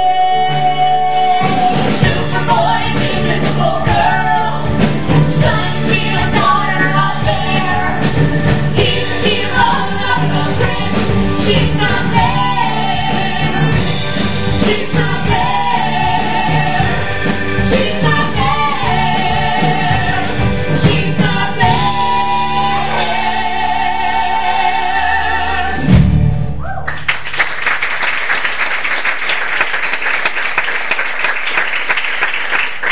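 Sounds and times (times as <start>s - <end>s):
voices singing in harmony: 0.0s - 26.0s
keyboard accompaniment: 0.0s - 26.6s
audience applause: 26.7s - 32.9s.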